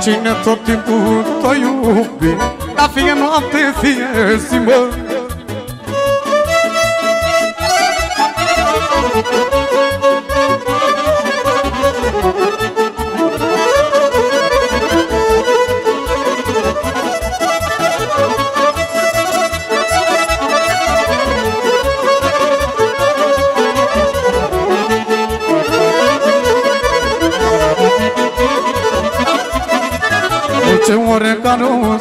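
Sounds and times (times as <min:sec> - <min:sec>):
accordion playing fast melody: 0:00.0 - 0:32.0
steady beat: 0:11.4 - 0:31.2.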